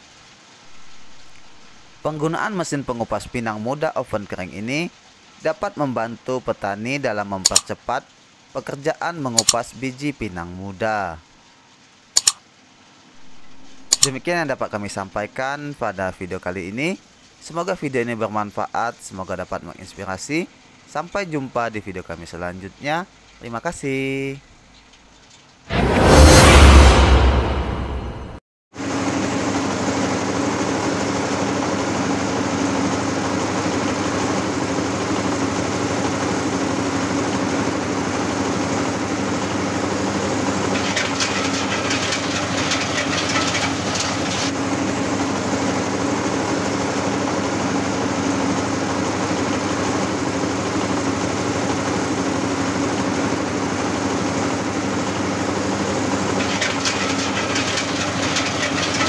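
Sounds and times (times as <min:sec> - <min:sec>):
diesel engine drone: 0:00.0 - 0:02.2, 0:25.7 - 0:59.0
machine rapid clatter: 0:09.4 - 0:09.6, 0:12.2 - 0:12.4, 0:13.2 - 0:14.2, 0:29.0 - 0:59.0.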